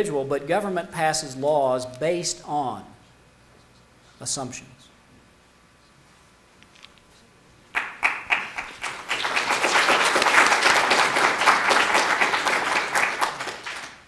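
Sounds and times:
audience applause: 7.8 - 14.0.

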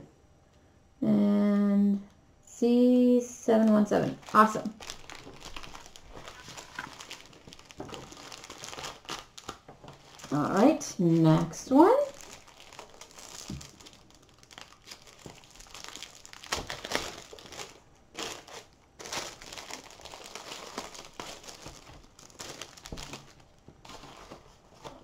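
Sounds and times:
plastic wrapping crinkling: 3.5 - 25.0.

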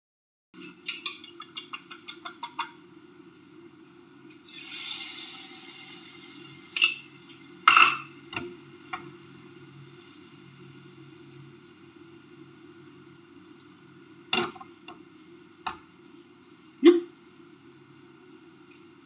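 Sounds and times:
clinks against pan: 0.6 - 2.7, 6.8 - 8.2
fork beating eggs in bowl: 0.6 - 2.8
egg sizzling in frying pan: 4.4 - 10.7.

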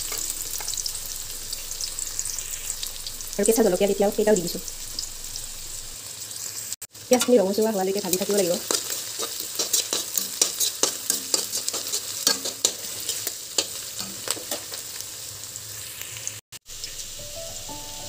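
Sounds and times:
vegetables sizzling in hot oil: 0.0 - 18.0
spatula scraping a pan: 8.1 - 14.8.

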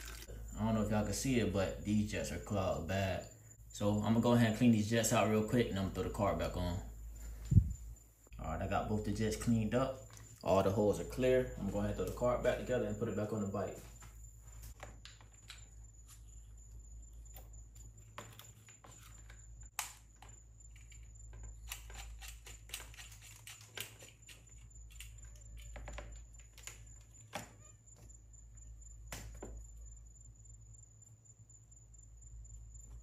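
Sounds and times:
steady low hum: 0.1 - 18.2.

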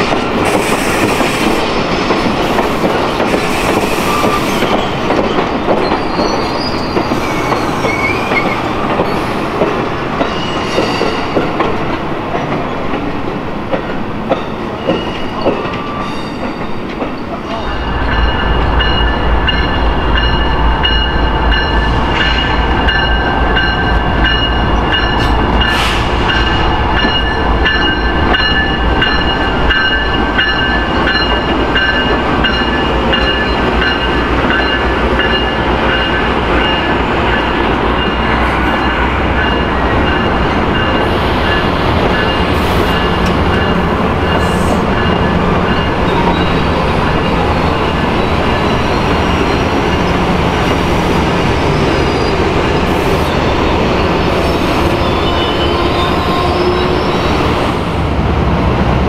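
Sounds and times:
steel wheels rolling on rail: 0.0 - 59.0
diesel locomotive rumble: 17.5 - 59.0.

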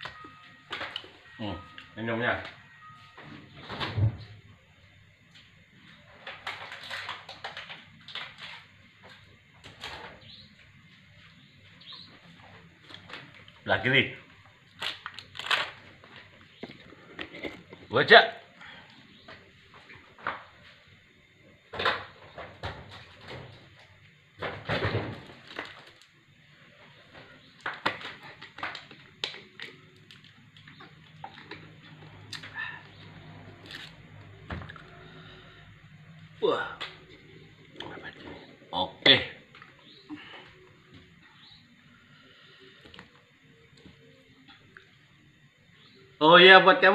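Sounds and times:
items clinking in refrigerator: 0.0 - 4.4, 6.0 - 10.4.

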